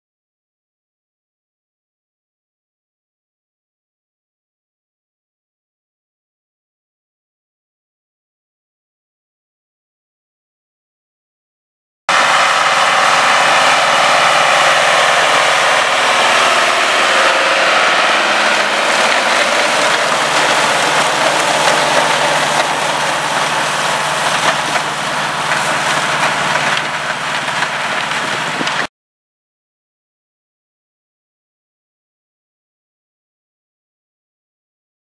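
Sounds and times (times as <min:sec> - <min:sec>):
machine shredding foliage: 0:12.1 - 0:28.9
tractor engine running: 0:12.1 - 0:28.9.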